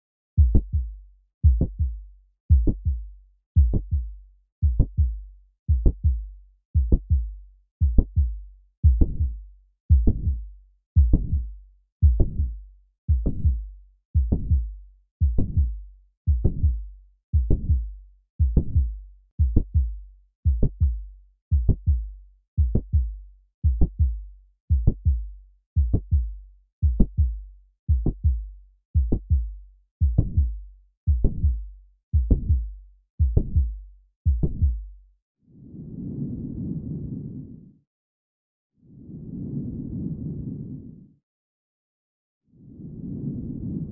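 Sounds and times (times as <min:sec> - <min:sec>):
heartbeat through a stethoscope: 0:00.4 - 0:35.0.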